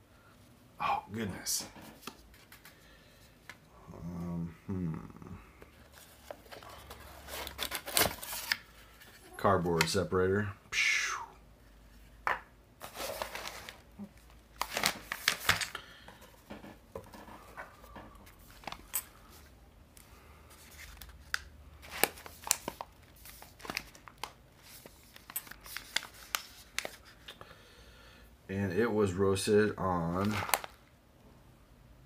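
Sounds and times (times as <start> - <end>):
coffee bag crinkling: 12.8 - 15.9, 20.7 - 27.2, 30.0 - 30.8.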